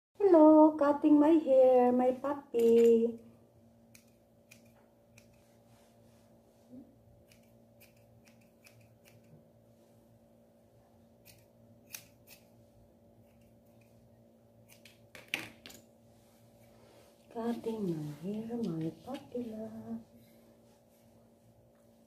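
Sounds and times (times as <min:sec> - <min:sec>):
faint steady hum: 0:00.2 - 0:22.0
scissors snipping fur: 0:03.9 - 0:05.5, 0:07.2 - 0:09.4, 0:11.2 - 0:12.6, 0:13.2 - 0:14.0, 0:14.6 - 0:15.1.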